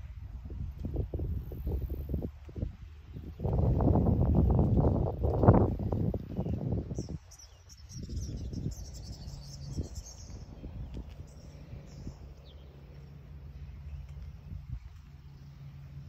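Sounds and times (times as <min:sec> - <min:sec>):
wind buffeting microphone: 0:00.0 - 0:16.0
birds chirping: 0:05.8 - 0:16.0
steady low hum: 0:08.2 - 0:16.0.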